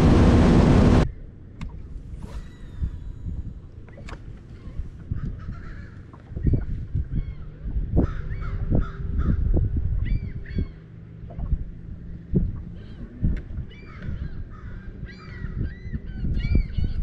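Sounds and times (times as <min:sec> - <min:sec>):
low rumble with thumps: 0:00.0 - 0:02.2, 0:02.8 - 0:17.0
birds cawing: 0:05.1 - 0:06.2, 0:12.8 - 0:16.6.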